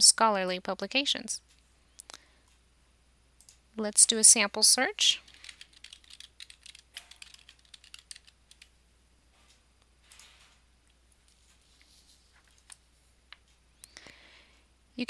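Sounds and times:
keyboard typing: 5.2s - 8.7s.

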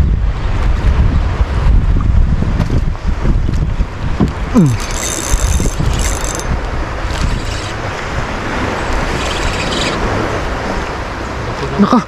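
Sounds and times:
wind buffeting microphone: 0.0s - 11.7s
high-pitched mechanical whirring: 4.6s - 7.8s, 9.1s - 10.0s.

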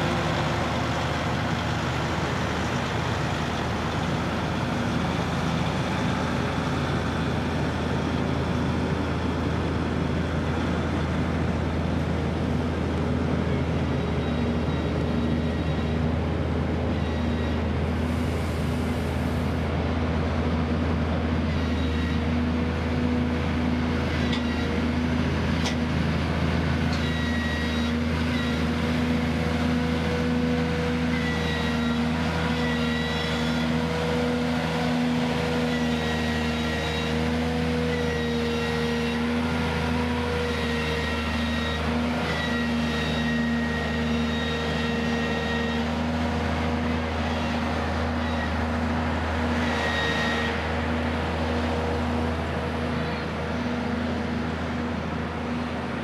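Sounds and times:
diesel engines droning: 0.0s - 56.0s
short high-pitched squeaks: 16.9s - 18.2s, 21.6s - 22.3s, 26.9s - 28.7s, 31.1s - 33.8s, 40.5s - 46.0s, 47.2s - 48.7s, 49.5s - 50.7s.

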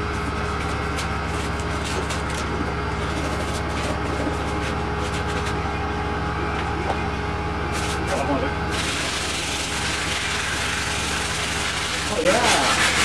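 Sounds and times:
low machine hum: 0.0s - 13.0s
scraping strokes on foam: 8.8s - 13.0s.

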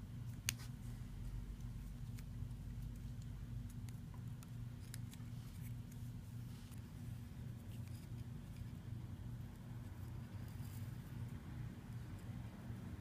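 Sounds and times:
steady low hum: 0.0s - 13.0s
string rustling and clicking: 0.3s - 8.8s.

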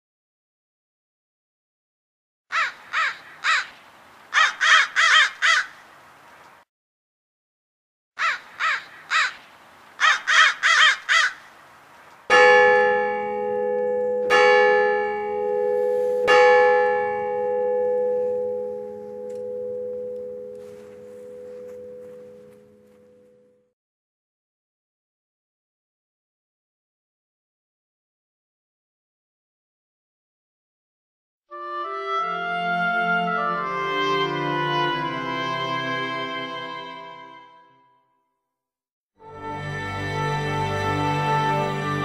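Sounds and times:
bird cawing: 2.5s - 6.0s, 8.2s - 11.6s
large bell tolling: 12.3s - 23.7s.

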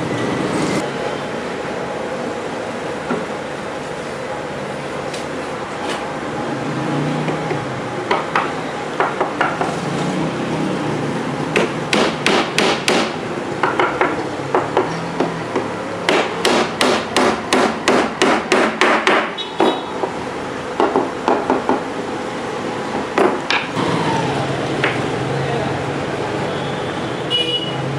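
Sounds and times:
steady background hum: 0.0s - 26.4s
hammer striking particleboard: 11.6s - 19.8s.

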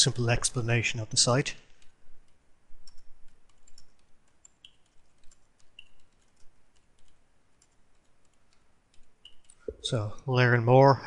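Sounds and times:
faint keyboard typing: 1.6s - 10.2s.

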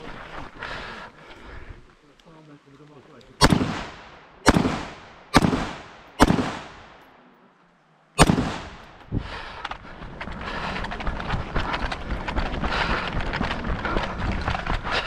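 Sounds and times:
rifle shots echoing: 3.4s - 7.3s, 8.2s - 9.0s.

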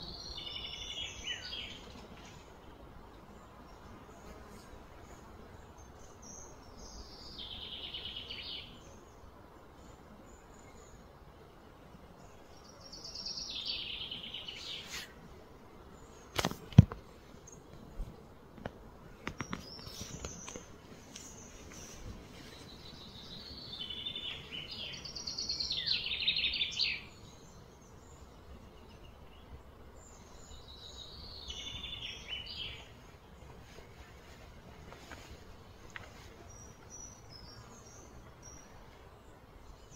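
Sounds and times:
cicadas buzzing: 12.6s - 15.2s, 19.2s - 39.9s.

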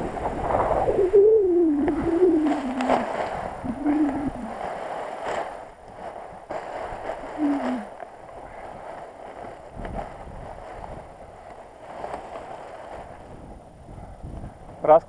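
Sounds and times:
short low falling tones: 0.0s - 4.5s
nylon canopy rustling and flapping: 0.0s - 15.0s
wind rushing over microphone: 0.0s - 15.0s.

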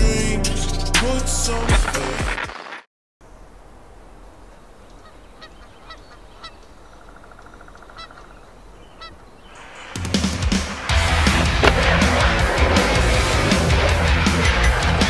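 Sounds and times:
steady background hiss: 3.2s - 10.8s
gulls calling: 3.3s - 15.0s
loud music: 10.0s - 15.0s.

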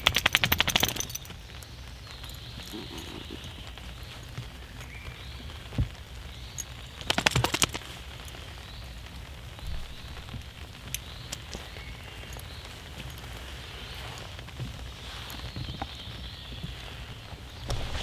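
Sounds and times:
nylon hammock crinkling: 0.0s - 18.0s
rain pattering: 0.0s - 18.0s.

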